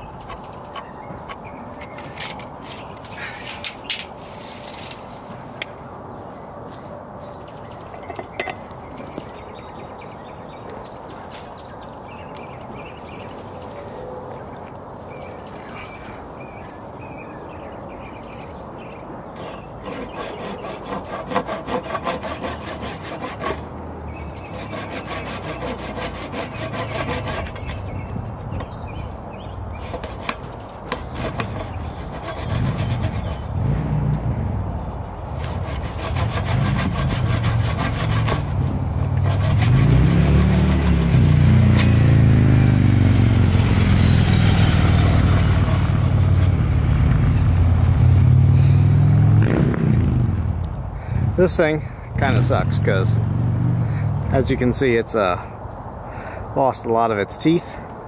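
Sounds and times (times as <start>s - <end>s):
hand saw cutting wood: 19.4s - 23.7s, 24.3s - 28.6s, 29.7s - 33.6s, 35.4s - 42.0s, 45.1s - 46.7s.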